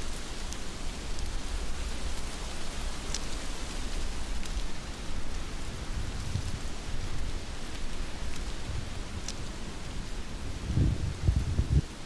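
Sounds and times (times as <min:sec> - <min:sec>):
raindrops ticking close: 0:00.0 - 0:11.6.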